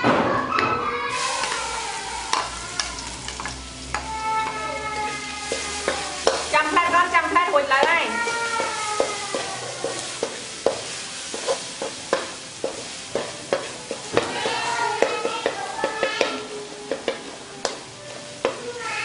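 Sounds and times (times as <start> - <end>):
oil sizzling: 0.0 - 19.0
metal ladle scraping a wok: 1.2 - 16.4.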